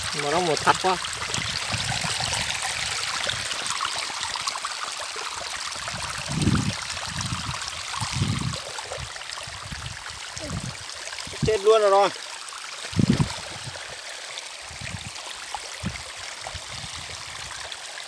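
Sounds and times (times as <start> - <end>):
water running over rocks: 0.0 - 18.0.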